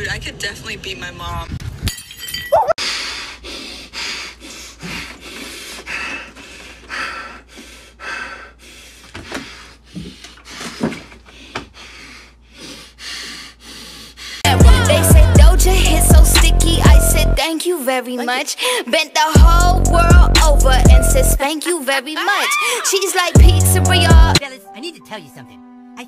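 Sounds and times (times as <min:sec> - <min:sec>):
man breathing hard through nose: 0:02.8 - 0:14.5.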